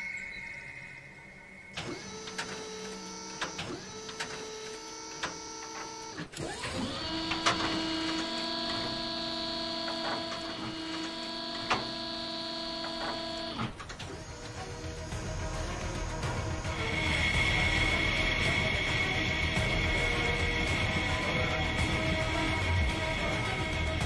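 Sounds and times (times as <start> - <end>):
electric motor whine: 1.7 - 24.0
mechanical clicks and clacks: 1.8 - 17.1.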